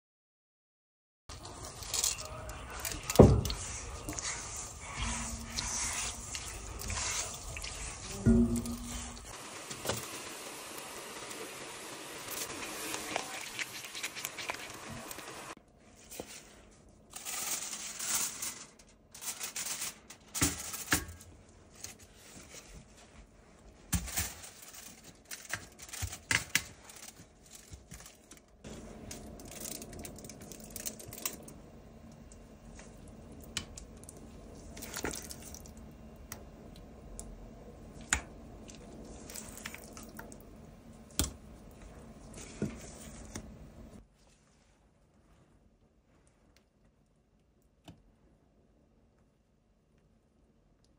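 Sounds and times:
dough crinkling and squishing: 1.3 - 10.0, 12.3 - 48.4
cherries simmering in a pan: 1.3 - 15.6, 24.6 - 44.1.

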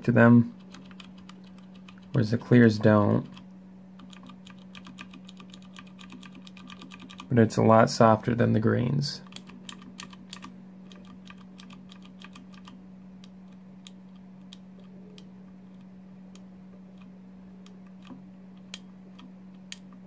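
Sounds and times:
steady low hum: 0.0 - 20.0
keyboard switches clicking: 4.0 - 7.3, 9.2 - 16.4.

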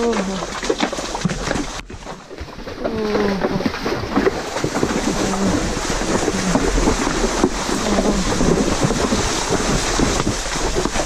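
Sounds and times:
horse hoofbeats: 0.0 - 11.0
wind on microphone: 2.8 - 11.0.

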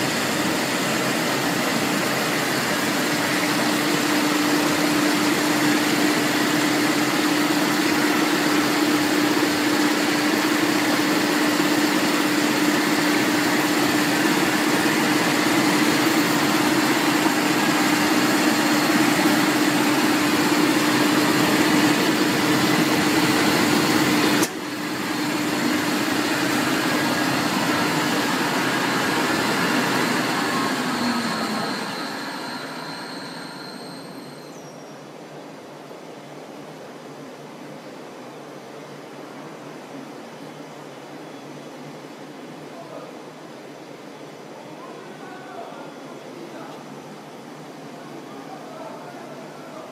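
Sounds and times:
rope making machine whirring: 0.0 - 34.4.

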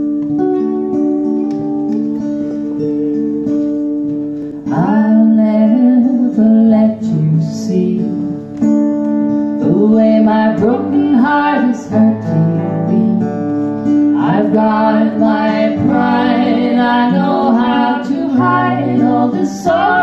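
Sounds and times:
acoustic guitars strumming: 0.0 - 20.0
person singing: 4.6 - 8.6, 9.6 - 13.4, 14.2 - 20.0.

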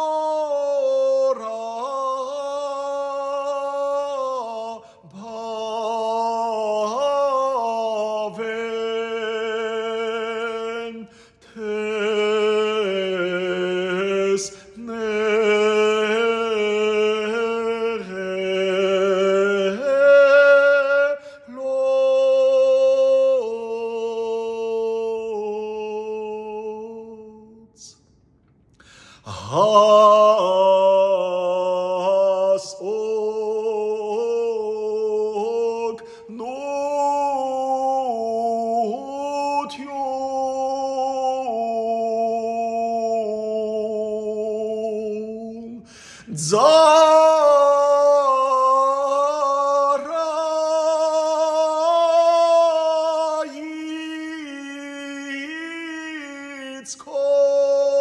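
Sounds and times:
man singing unaccompanied chant: 0.0 - 28.0, 29.3 - 58.0.

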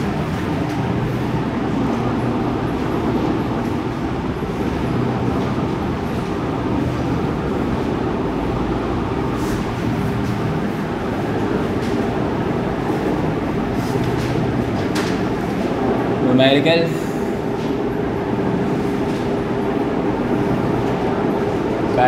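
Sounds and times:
machinery or traffic rumble: 0.0 - 22.0.

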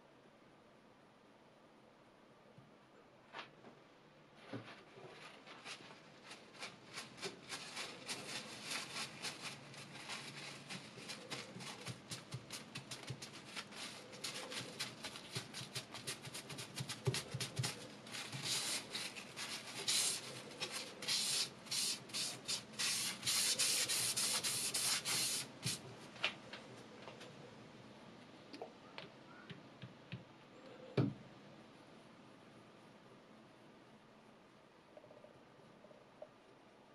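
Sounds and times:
paper towel rubbing on whetstone: 4.8 - 25.8.

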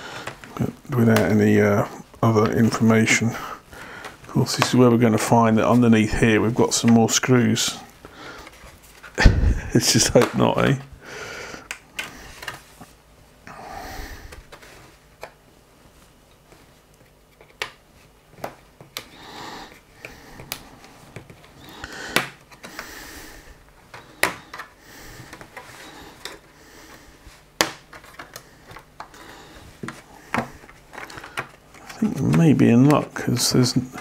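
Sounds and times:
plastic cover clicking and snapping: 20.4 - 22.9, 27.6 - 29.2, 29.8 - 33.2.

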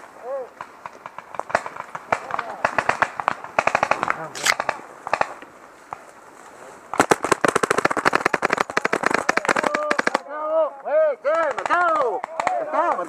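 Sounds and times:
paintball marker rapid shots: 0.6 - 5.4, 6.9 - 10.2, 11.4 - 13.0.

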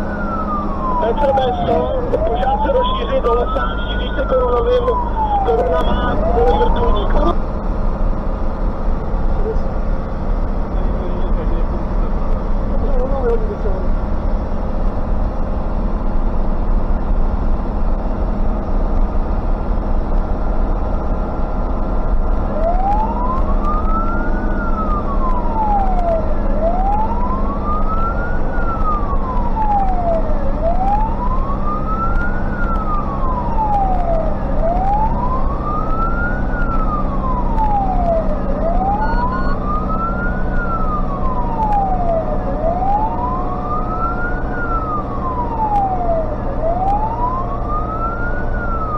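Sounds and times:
wailing siren: 0.0 - 7.4, 21.4 - 48.9
diesel engine running: 0.0 - 48.9.

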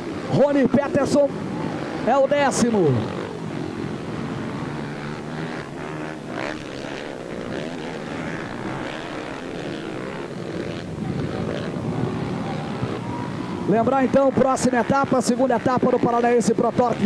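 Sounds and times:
motorcycle engines revving: 0.0 - 17.0.

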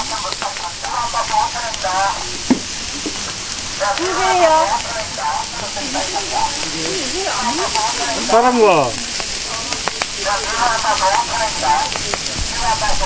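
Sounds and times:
meat sizzling on a grill: 0.0 - 13.0
people talking: 0.0 - 13.0
person calling out: 3.9 - 4.8, 5.7 - 9.0.

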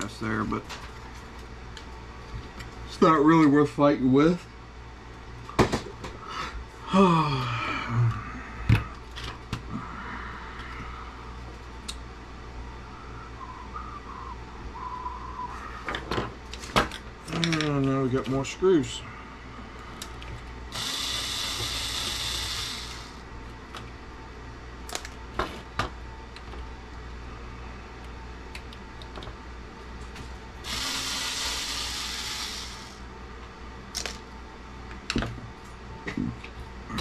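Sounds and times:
electric screwdriver whirring: 20.7 - 23.2, 30.6 - 33.0.

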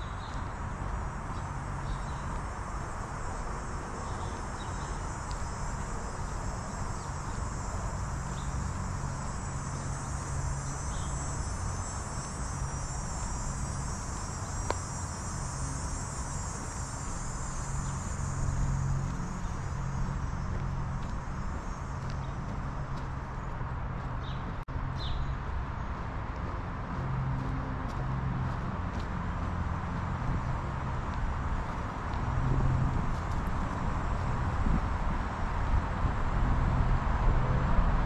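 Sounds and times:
insects trilling: 0.0 - 24.4.

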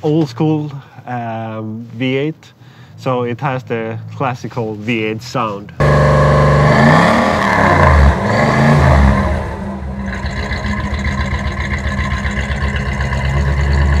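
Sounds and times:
engine revving and idling: 5.8 - 14.0.

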